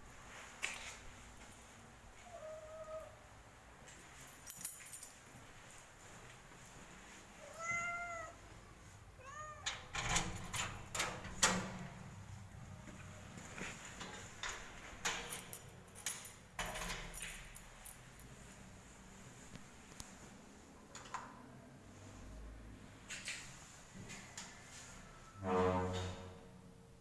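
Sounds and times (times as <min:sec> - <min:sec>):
cat meowing: 0:07.4 - 0:08.4, 0:09.2 - 0:09.7.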